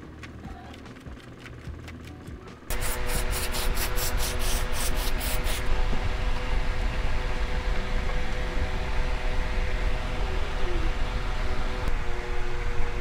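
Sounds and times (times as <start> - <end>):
aerosol spray bursts: 2.7 - 5.7.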